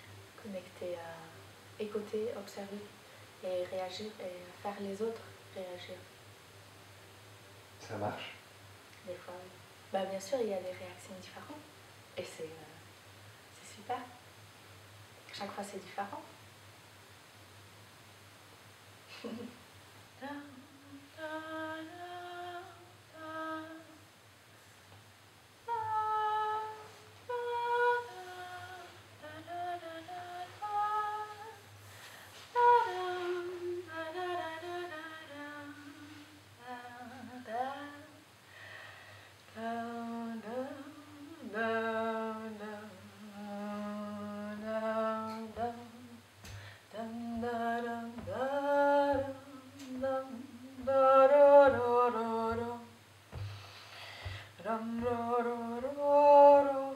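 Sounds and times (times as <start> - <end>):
woman humming and singing: 20.2 - 24.1, 25.7 - 31.6, 32.6 - 38.2, 39.5 - 46.2, 46.9 - 53.6, 54.2 - 56.9.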